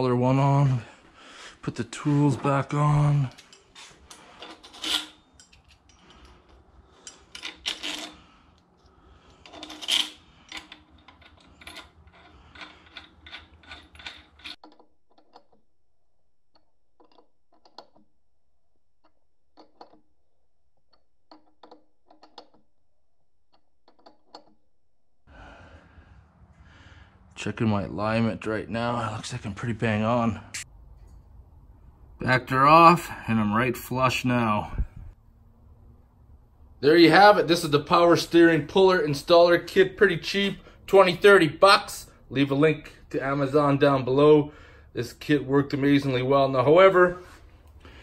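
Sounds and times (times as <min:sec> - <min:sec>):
wrenches and tool clinking: 0:01.9 - 0:15.6.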